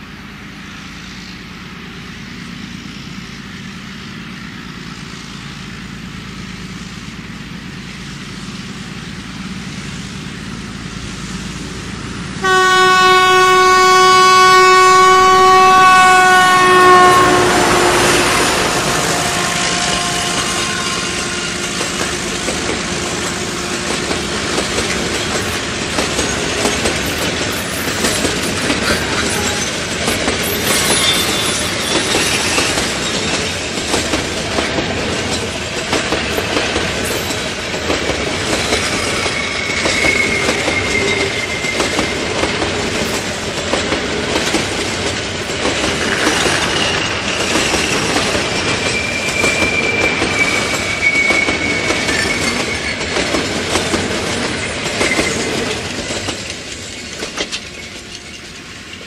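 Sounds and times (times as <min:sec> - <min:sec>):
freight train wheels clattering: 0:15.2 - 0:59.0
high wheel squeal: 0:15.4 - 0:34.0, 0:38.6 - 0:43.4, 0:46.0 - 0:53.4, 0:54.3 - 0:59.0.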